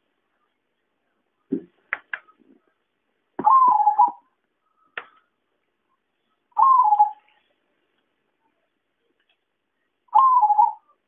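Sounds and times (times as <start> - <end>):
dove calling: 3.4 - 4.2, 6.5 - 7.3, 10.1 - 11.0.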